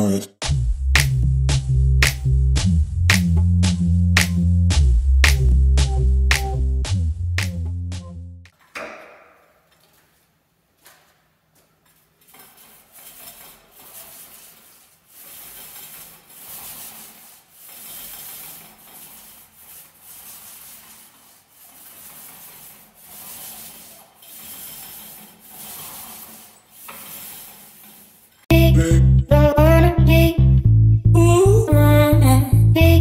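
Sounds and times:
paint roller swishing on wall: 8.5 - 28.5.

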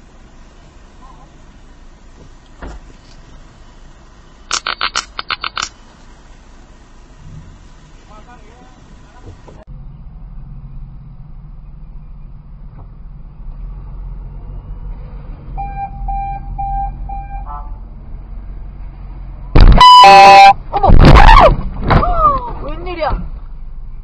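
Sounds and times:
car engine idling: 0.0 - 4.5, 5.1 - 13.7
short beeps: 15.6 - 17.6, 19.6 - 20.6
car horn blast: 15.6 - 17.8, 19.6 - 20.6
loud shout: 20.8 - 22.6.

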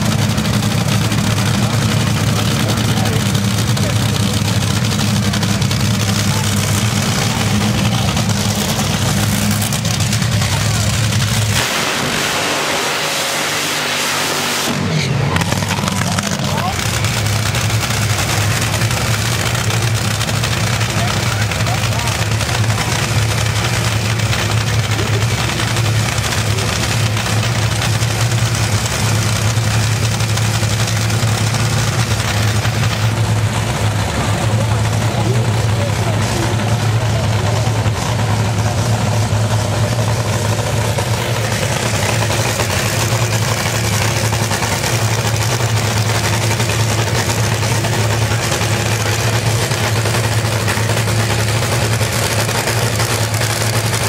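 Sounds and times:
dragster engine idling: 0.0 - 54.0.

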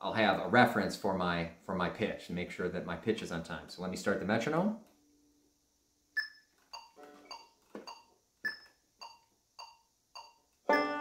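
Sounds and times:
metronome clicking: 8.4 - 10.9
banjo chord: 10.7 - 11.0.

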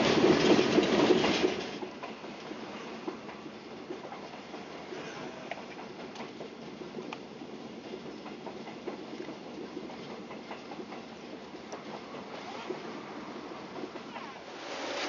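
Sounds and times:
train rolling on rails: 0.0 - 15.0
wheels clicking on track: 0.0 - 15.0.

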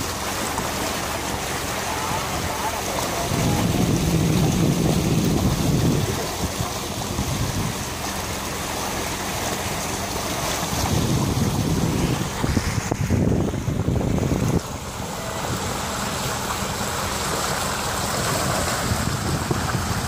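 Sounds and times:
water rushing along hull: 0.0 - 20.0
wind buffeting microphone: 3.0 - 8.0, 10.5 - 16.0, 18.0 - 20.0.

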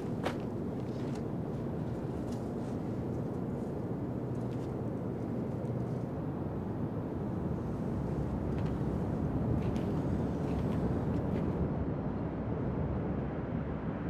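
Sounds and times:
low rumble of city ambience: 0.0 - 14.0.

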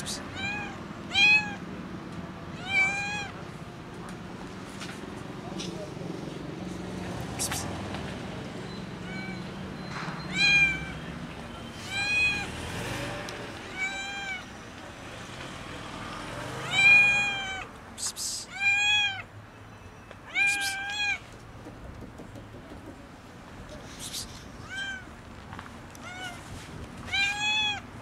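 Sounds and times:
cat meowing loudly: 0.0 - 1.6, 2.5 - 3.4, 9.0 - 9.5, 10.2 - 11.0, 11.8 - 12.5, 13.7 - 14.5, 16.6 - 17.7, 18.4 - 19.3, 20.3 - 21.2, 24.6 - 25.2, 26.0 - 27.9.

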